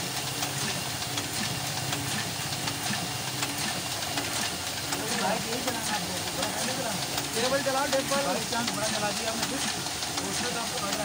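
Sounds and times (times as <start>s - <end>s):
printing press whirring: 0.0s - 11.0s.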